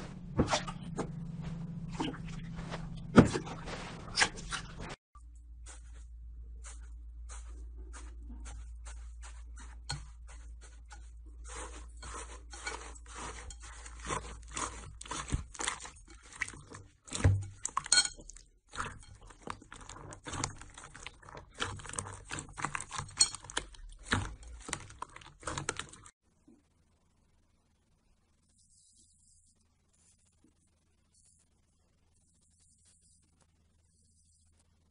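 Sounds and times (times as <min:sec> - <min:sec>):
low hum: 0:00.0 - 0:18.1.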